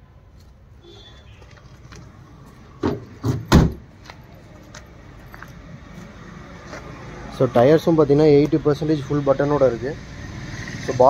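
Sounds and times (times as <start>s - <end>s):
car tailgate slamming shut: 2.8s - 3.8s.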